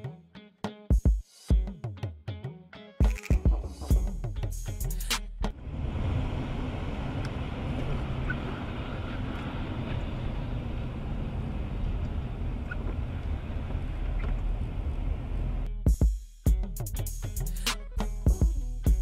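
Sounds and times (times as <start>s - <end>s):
car road noise on wet highway: 5.6s - 15.7s.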